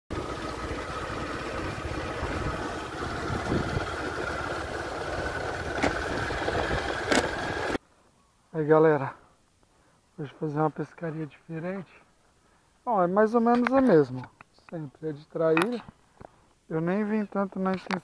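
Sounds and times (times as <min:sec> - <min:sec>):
motorcycle engine running: 0:00.1 - 0:07.8.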